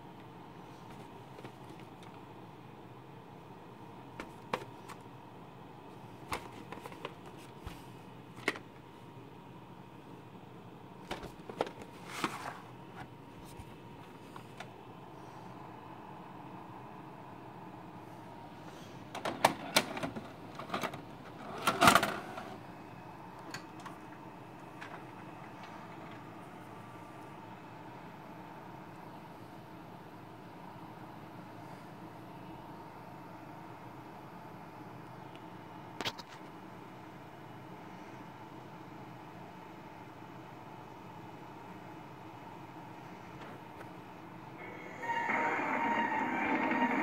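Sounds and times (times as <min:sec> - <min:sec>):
cassette clicking into slot: 0:19.2 - 0:22.2
tape loading mechanism whirring: 0:19.2 - 0:22.6, 0:44.6 - 0:47.0.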